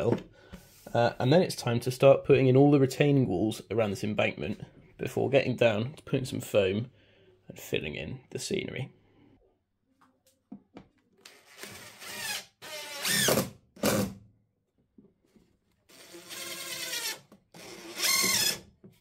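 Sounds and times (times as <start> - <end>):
impact driver driving screws: 15.9 - 18.6.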